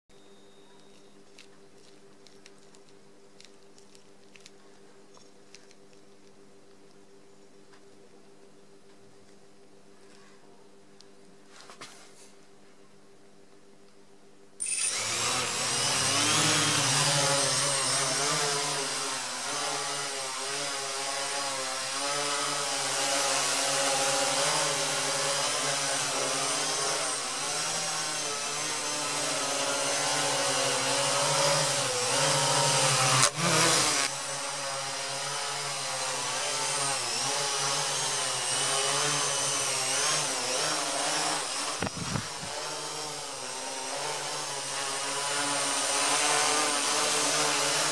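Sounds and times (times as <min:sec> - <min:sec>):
quadcopter motors buzzing: 0:14.6 - 0:47.9.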